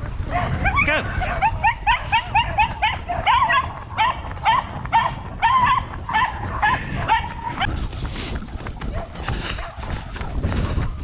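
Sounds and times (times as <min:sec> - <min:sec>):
dog yelping: 0:00.3 - 0:07.7.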